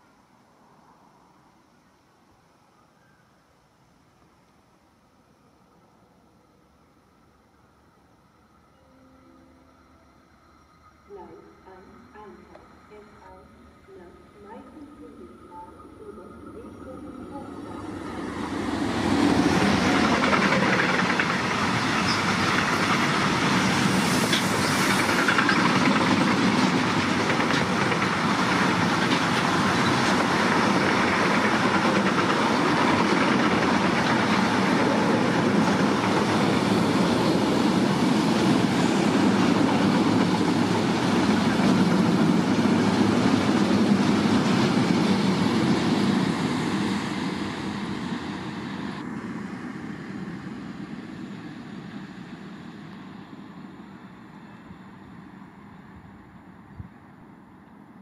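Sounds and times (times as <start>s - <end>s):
train wheels rolling on rail: 10.5s - 55.9s.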